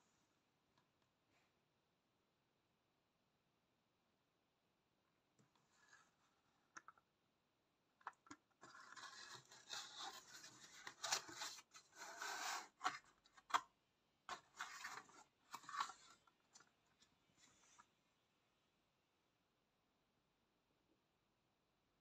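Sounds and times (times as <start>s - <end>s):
cardboard rubbing and scraping: 8.6s - 13.0s.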